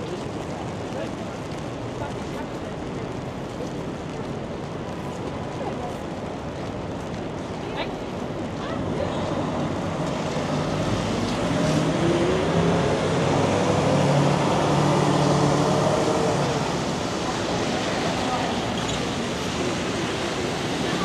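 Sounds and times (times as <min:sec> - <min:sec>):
traffic hiss on wet street: 0:00.0 - 0:21.0
truck diesel engine accelerating: 0:10.5 - 0:17.8.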